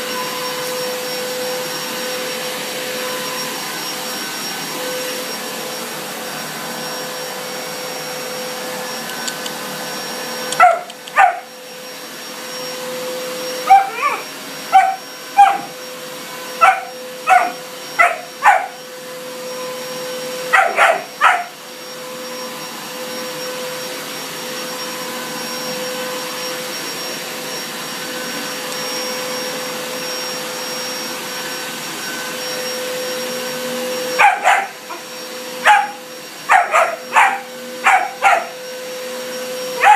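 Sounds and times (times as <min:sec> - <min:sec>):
vacuum cleaner humming: 0:00.0 - 0:39.9
puppy barking: 0:10.5 - 0:11.5, 0:13.6 - 0:15.8, 0:16.6 - 0:18.8, 0:20.5 - 0:21.6, 0:34.2 - 0:35.0, 0:35.6 - 0:38.6.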